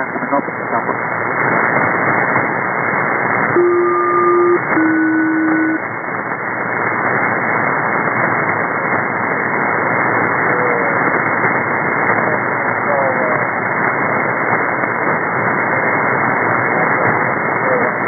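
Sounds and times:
radio static hiss: 0:00.0 - 0:18.0
two-tone radio call pulses: 0:03.5 - 0:05.8.

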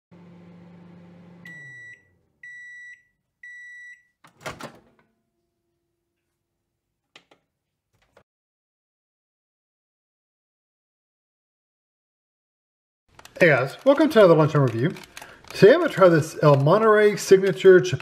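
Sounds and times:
microwave oven humming: 0:00.1 - 0:02.7.

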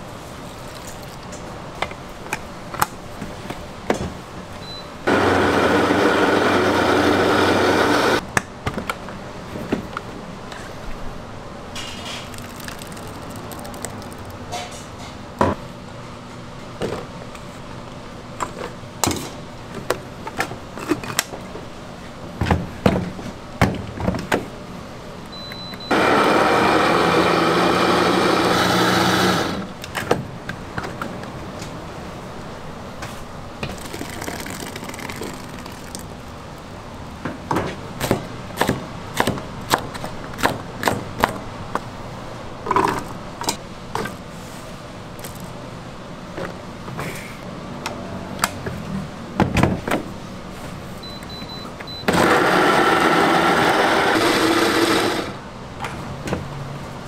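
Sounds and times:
blender motor grinding: 0:05.1 - 0:08.2, 0:25.9 - 0:29.7, 0:52.1 - 0:55.4.

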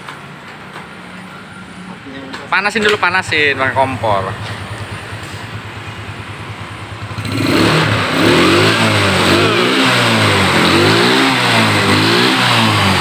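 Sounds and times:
scooter engine revving: 0:03.0 - 0:13.0.

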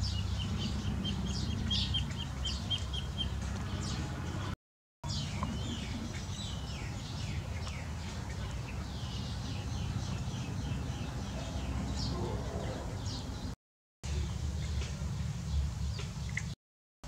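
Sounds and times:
steady low rumble: 0:00.0 - 0:12.0
small birds chirping: 0:00.0 - 0:16.6.

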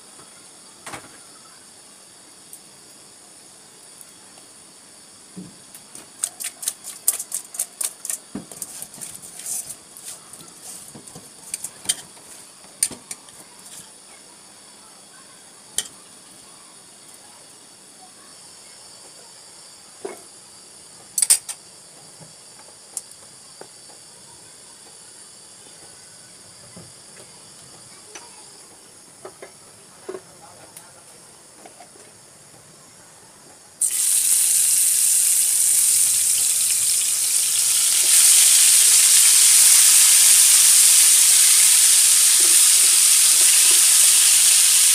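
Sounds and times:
fish sizzling in hot oil: 0:33.8 - 0:44.9.

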